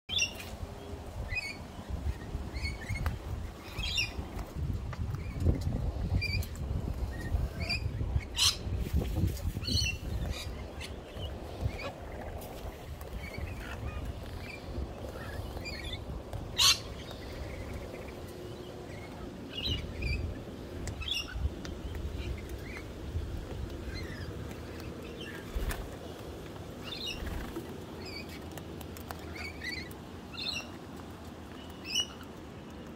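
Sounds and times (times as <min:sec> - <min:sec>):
parrots chirping and squeaking: 0:01.3 - 0:04.3, 0:07.1 - 0:08.7, 0:09.5 - 0:21.5, 0:23.8 - 0:25.8, 0:26.8 - 0:30.8, 0:31.6 - 0:32.3.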